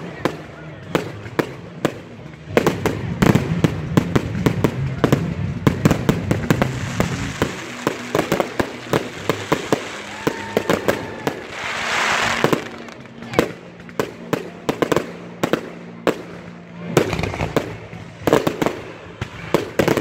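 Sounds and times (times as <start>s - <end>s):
fireworks popping and banging: 0.0s - 20.0s
fireworks hissing: 4.8s - 13.4s.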